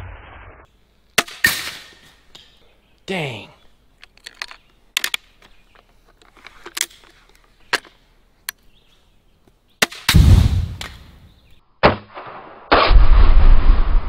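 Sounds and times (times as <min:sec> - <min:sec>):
crossbow shot snap: 0:09.9 - 0:11.2
target explosion boom: 0:10.1 - 0:11.1, 0:12.1 - 0:14.0
loud bang: 0:10.1 - 0:11.2.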